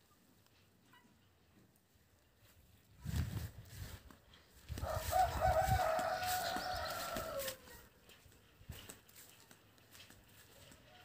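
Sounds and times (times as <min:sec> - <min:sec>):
rooster crowing: 0:04.7 - 0:07.9.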